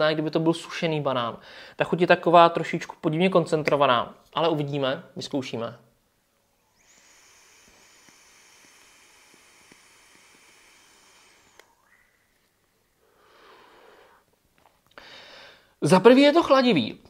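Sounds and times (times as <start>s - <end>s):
vape draw hiss: 6.5s - 12.0s
breathy exhale: 7.2s - 11.8s, 13.0s - 14.3s, 15.0s - 15.8s
click: 11.5s - 11.7s.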